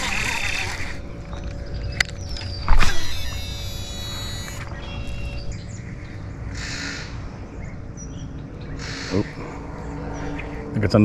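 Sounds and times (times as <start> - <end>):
reel spool whirring: 0.0 - 5.6.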